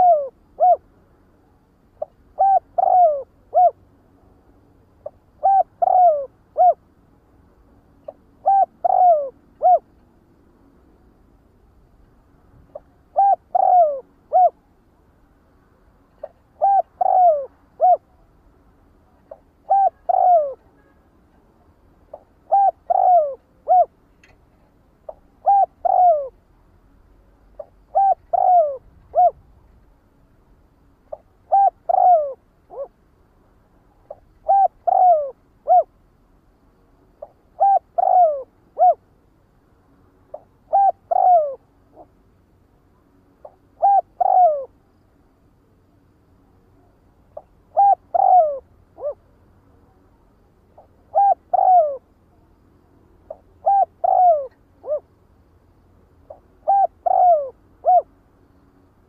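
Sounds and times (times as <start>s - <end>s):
dove cooing: 0.0s - 0.9s, 2.0s - 3.8s, 5.0s - 6.8s, 8.0s - 9.9s, 12.7s - 14.6s, 16.2s - 18.2s, 19.3s - 20.7s, 22.1s - 24.0s, 25.1s - 26.4s, 27.6s - 29.5s, 31.1s - 33.0s, 34.1s - 35.9s, 37.2s - 39.0s, 40.3s - 42.1s, 43.4s - 44.8s, 47.4s - 49.3s, 50.8s - 52.1s, 53.3s - 55.1s, 56.2s - 58.1s.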